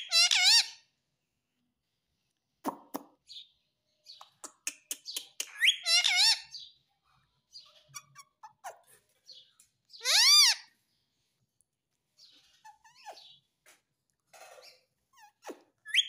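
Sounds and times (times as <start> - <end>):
loud parakeet call: 10.0 - 10.7.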